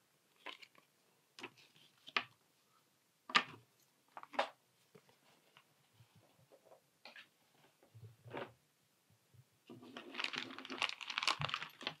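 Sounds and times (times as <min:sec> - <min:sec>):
paper rustling: 0:09.8 - 0:12.0.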